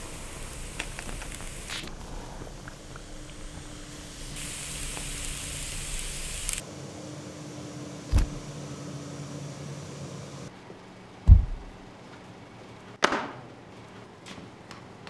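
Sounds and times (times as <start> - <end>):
steady hiss: 0.0 - 6.7
sharp knock: 11.3 - 11.8
low steady hum: 11.3 - 12.0.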